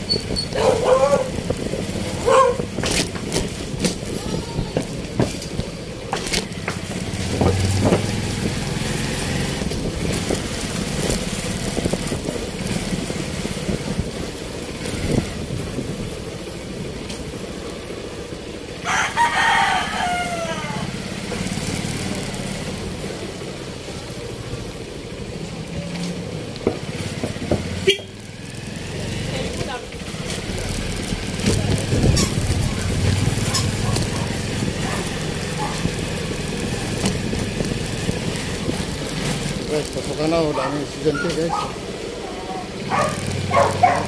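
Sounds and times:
street traffic: 0.0 - 44.0
rooster crowing: 18.8 - 21.0.

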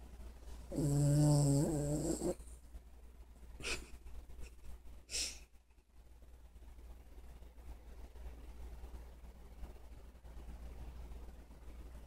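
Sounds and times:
dog snoring: 0.7 - 2.4.

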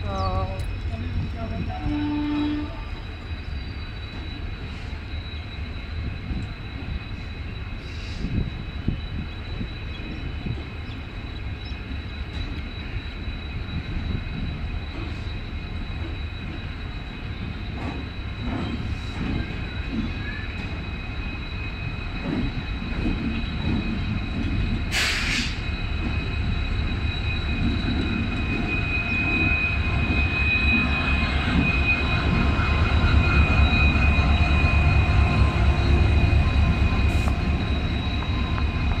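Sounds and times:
diesel locomotive engine rumble: 0.0 - 39.0
steady high whine: 0.0 - 39.0
train wheel rumble: 0.0 - 39.0
hiss of air: 7.8 - 8.6, 24.8 - 25.7.

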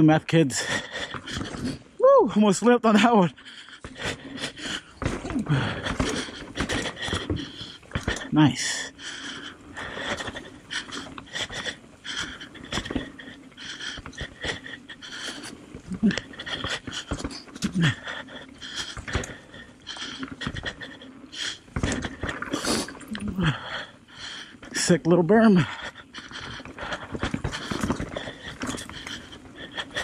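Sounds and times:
bike rattling over rough ground: 0.0 - 1.8, 3.0 - 30.0
rider breathing hard: 0.5 - 2.0, 3.3 - 30.0
rider grunting: 4.8 - 11.2, 14.0 - 30.0.

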